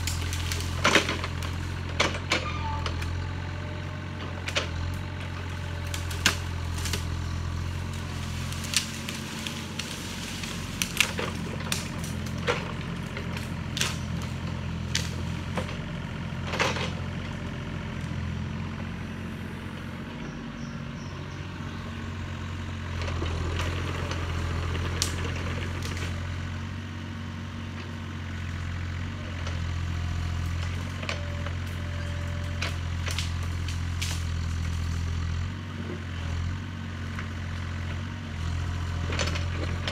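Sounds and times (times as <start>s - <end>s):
branches cracking and snapping: 0.0s - 2.4s, 4.3s - 17.4s, 23.0s - 26.4s, 29.4s - 35.6s, 37.1s - 39.9s
excavator diesel engine running: 0.0s - 39.9s.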